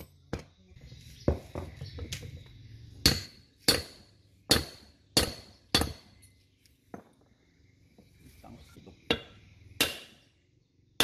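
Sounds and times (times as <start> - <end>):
hammer striking metal: 3.0 - 6.2, 9.1 - 10.3.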